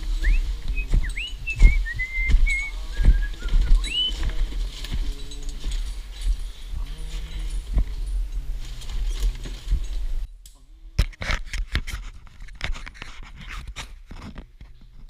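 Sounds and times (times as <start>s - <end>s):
gear clicking and scraping at microphone: 0.0s - 10.3s, 11.0s - 15.0s.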